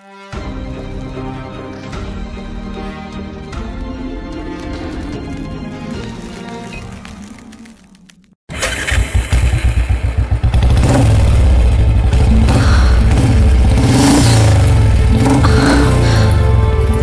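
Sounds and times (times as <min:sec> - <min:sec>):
scooter engine revving: 0:08.5 - 0:16.5.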